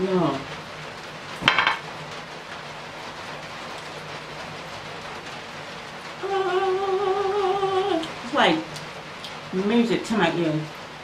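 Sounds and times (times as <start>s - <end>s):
heavy rain hissing: 0.0s - 11.0s
woman humming: 6.2s - 8.1s.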